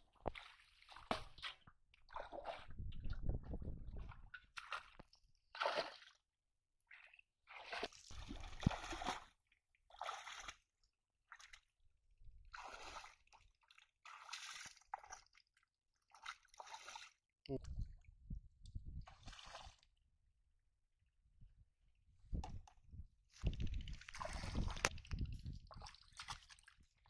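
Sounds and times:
muddy water sloshing and splashing: 0:00.0 - 0:06.2, 0:06.9 - 0:10.7, 0:11.3 - 0:11.7, 0:12.5 - 0:18.0, 0:18.8 - 0:19.9, 0:23.3 - 0:27.0.

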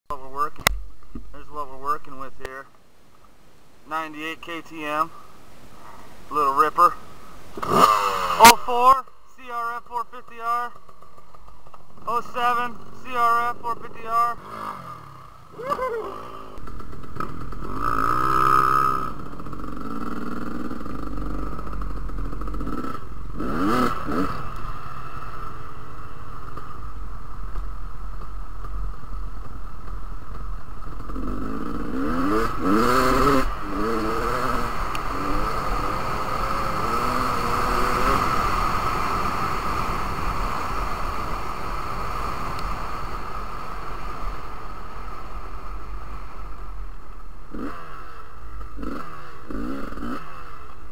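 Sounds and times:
dirt bike engines revving: 0:03.8 - 0:50.9.

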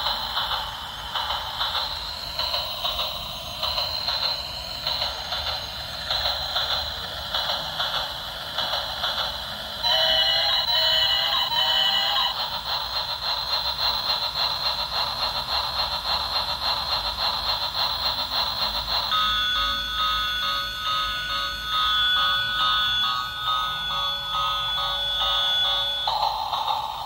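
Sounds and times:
toy train wheels clicking: 0:00.0 - 0:27.0
beeping jingle: 0:19.1 - 0:27.0.

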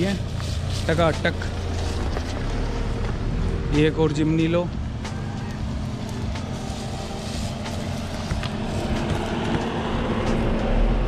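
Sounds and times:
car engine running at low speed: 0:00.0 - 0:11.0
second car engine: 0:00.0 - 0:11.0.

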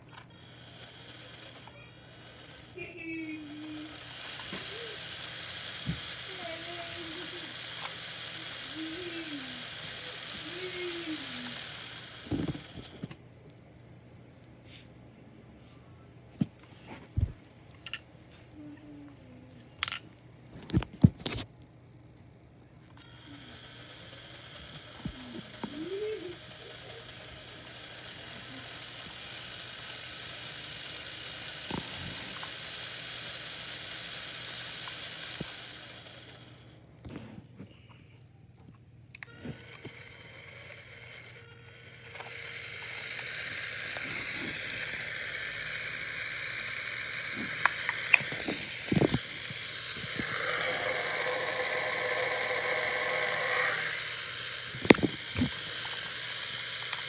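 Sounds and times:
electric motor fan whirring: 0:00.0 - 0:13.3, 0:22.8 - 0:37.3, 0:39.2 - 0:57.0.

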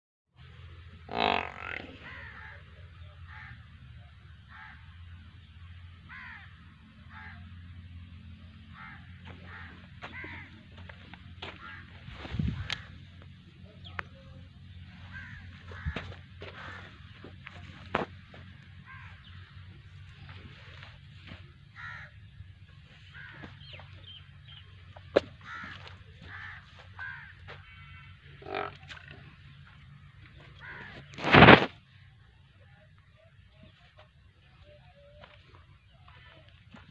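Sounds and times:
crows cawing: 0:01.1 - 0:03.8, 0:04.4 - 0:05.0, 0:06.0 - 0:07.6, 0:08.7 - 0:13.4, 0:14.8 - 0:31.7
steady low rumble: 0:01.7 - 0:34.6.

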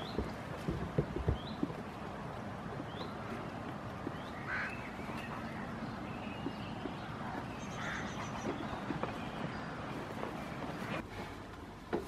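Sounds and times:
bird calls: 0:02.7 - 0:11.0.

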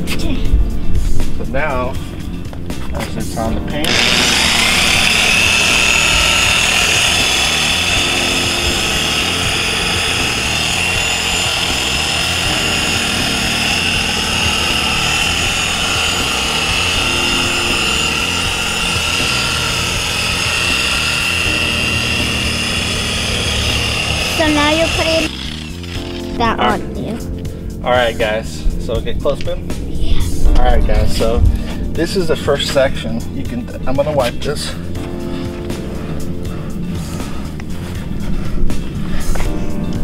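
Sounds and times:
orbital polisher motor whine: 0:03.8 - 0:26.3.

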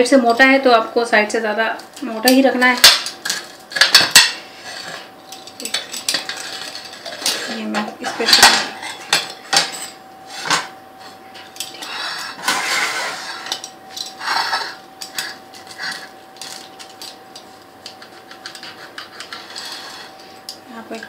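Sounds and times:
utensils scraping a ceramic plate: 0:03.8 - 0:10.7, 0:11.5 - 0:17.2, 0:17.8 - 0:20.5.

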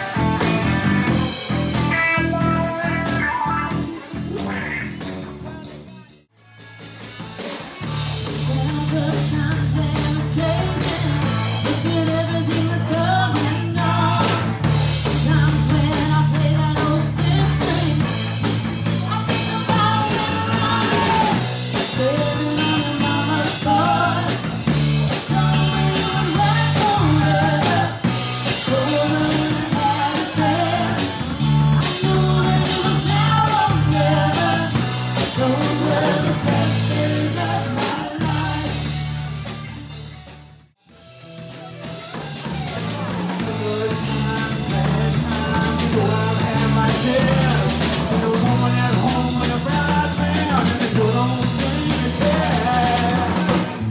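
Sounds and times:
drum kit beat: 0:00.0 - 0:53.9
electric bass: 0:00.0 - 0:53.9
electric guitar: 0:00.0 - 0:53.9
woman singing lead: 0:08.2 - 0:39.0, 0:42.1 - 0:53.9.

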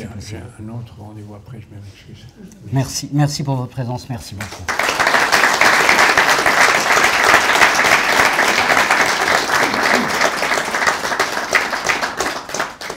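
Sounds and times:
audience applauding: 0:04.4 - 0:12.9.

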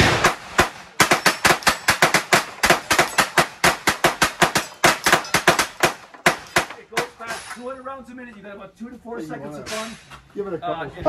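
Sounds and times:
gatling gun firing rapid shots: 0:00.0 - 0:07.1.

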